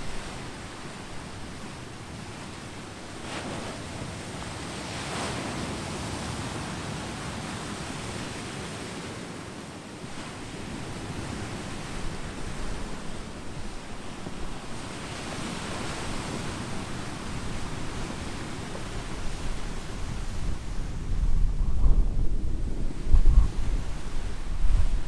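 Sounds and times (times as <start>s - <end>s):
surf washing over pebbles: 0.0s - 9.4s.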